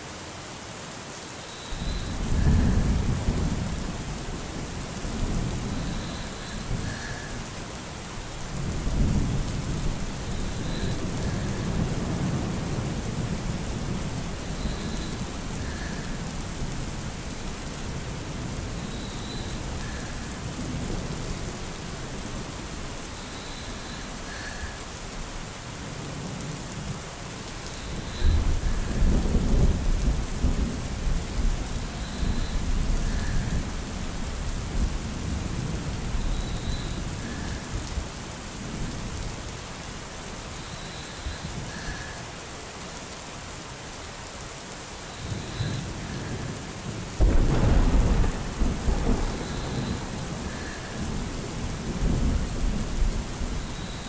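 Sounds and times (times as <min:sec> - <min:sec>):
steady rain: 0:00.0 - 0:54.0
rolling thunder: 0:47.2 - 0:53.7.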